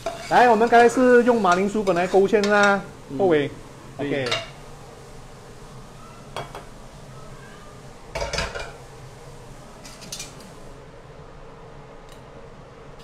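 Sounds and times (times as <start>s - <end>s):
metal ladle clinking and scraping: 0.0s - 2.7s.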